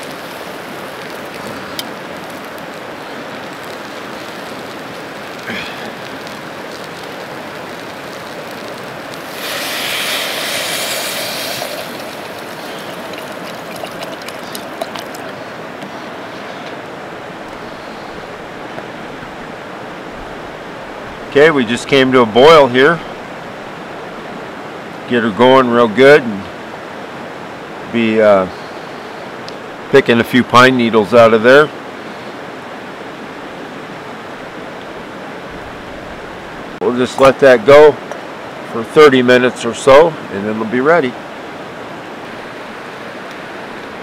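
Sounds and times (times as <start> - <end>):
water sizzling in hot pot: 0.0 - 15.4
steady rushing noise: 0.0 - 24.6.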